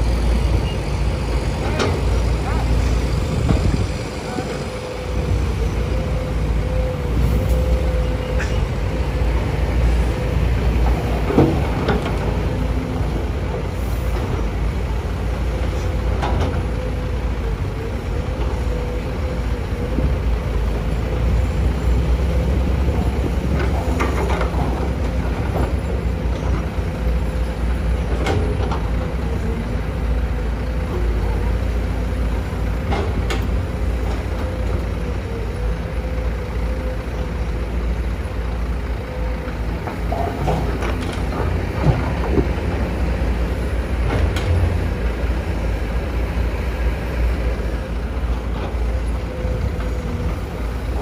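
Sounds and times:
diesel engines running: 0.0s - 51.0s.

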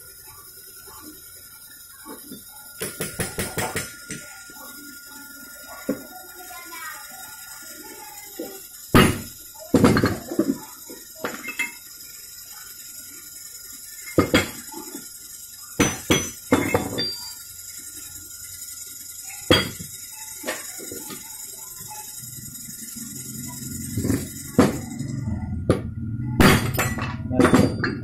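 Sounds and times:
metal parts knocking and clinking: 8.4s - 12.1s, 14.0s - 15.1s, 15.8s - 17.4s, 19.4s - 21.3s, 26.4s - 28.0s.

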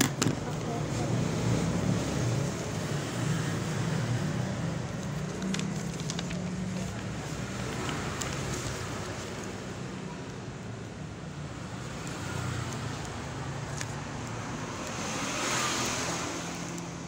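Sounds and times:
paper rustling and crinkling: 4.8s - 9.8s.

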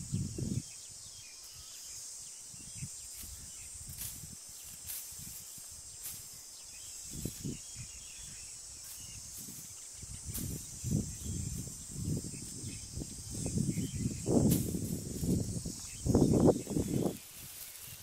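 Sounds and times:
high-pitched insect chorus: 0.0s - 18.0s
dry grass rustling and crunching: 3.1s - 18.0s
footsteps: 14.4s - 18.0s.

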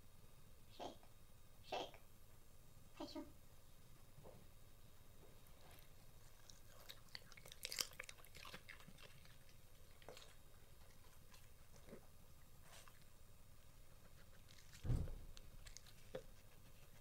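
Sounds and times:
dog crunching cucumber: 5.6s - 13.1s, 14.3s - 16.4s.

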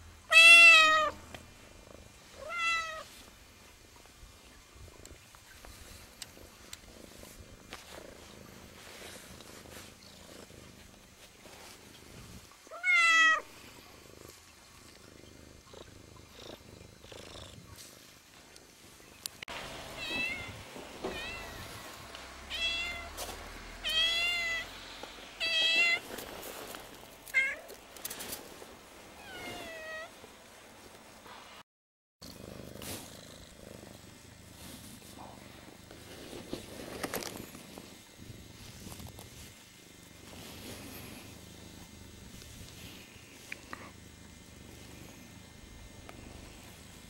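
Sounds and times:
cat meowing: 0.3s - 1.2s, 2.4s - 3.1s, 12.7s - 13.4s, 20.0s - 21.8s, 22.5s - 23.2s, 23.8s - 24.8s.

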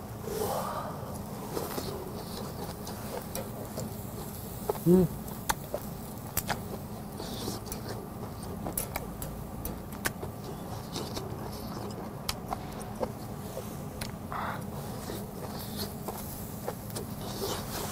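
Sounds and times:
metal tongs clicking on grill: 3.2s - 4.4s, 5.3s - 6.7s, 7.7s - 10.3s.

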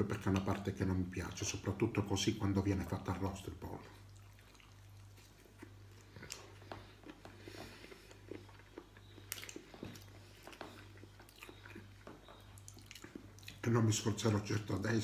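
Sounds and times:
person chewing: 3.8s - 13.7s.

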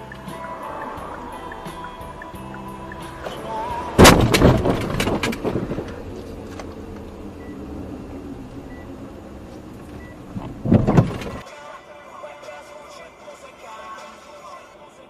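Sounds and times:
steady rumble: 0.0s - 11.4s
car crash: 2.9s - 6.7s, 10.4s - 11.4s
crunching and clattering: 4.0s - 7.0s.

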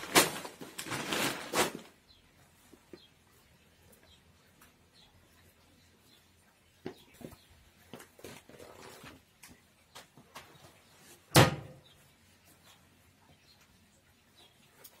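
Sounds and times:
tissue paper rustling: 0.0s - 2.0s
plastic bin lid thump: 11.4s - 11.7s.

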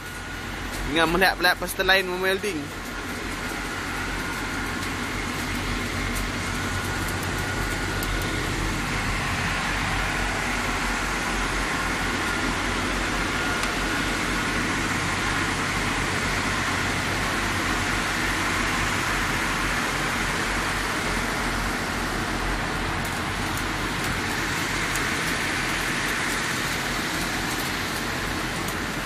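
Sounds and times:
constant hiss: 0.0s - 29.0s
low engine-like hum: 0.0s - 29.0s.

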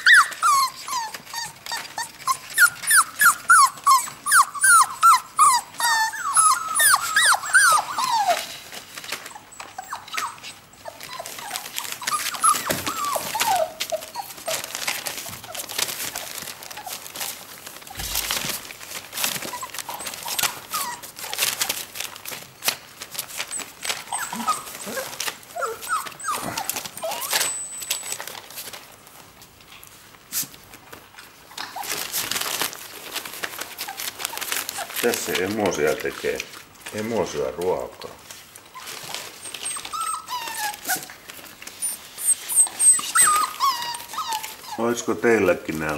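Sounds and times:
puppies whining: 0.0s - 29.8s, 30.8s - 45.9s
puppies scuffling on newspaper: 0.0s - 45.9s.

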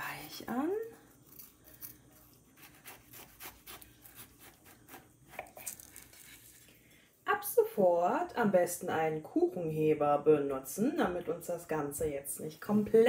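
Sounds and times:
knife cutting cake: 1.3s - 6.6s.

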